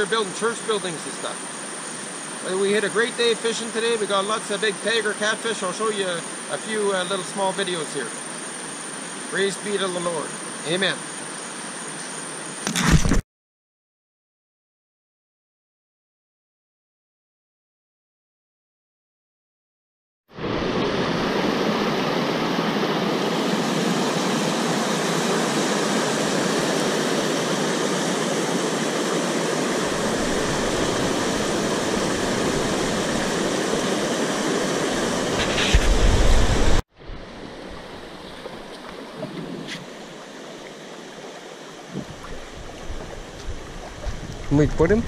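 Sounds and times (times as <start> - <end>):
river water washing: 0.0 - 12.6, 20.4 - 45.0
wind: 0.0 - 13.2, 20.3 - 45.0
river rapids roaring: 20.4 - 44.0.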